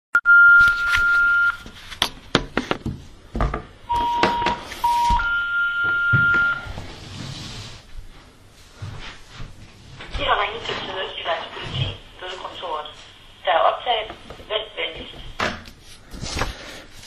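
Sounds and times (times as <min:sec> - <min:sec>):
telephone beeps: 0:00.2 - 0:01.6, 0:03.9 - 0:06.7.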